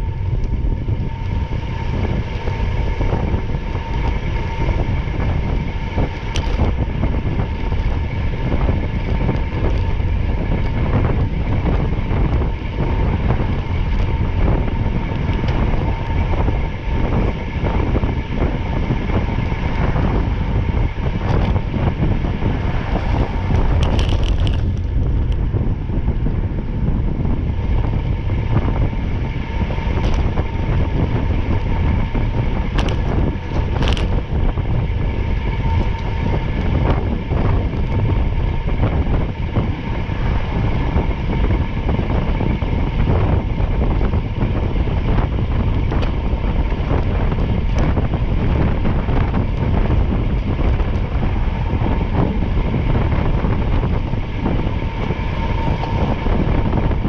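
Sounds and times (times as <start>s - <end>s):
constant hum: 0.0s - 57.0s
vehicle interior rumble: 0.0s - 57.0s
small rattles and clicks: 6.0s - 16.5s, 23.1s - 25.5s, 29.8s - 34.8s, 35.4s - 38.2s, 44.9s - 57.0s.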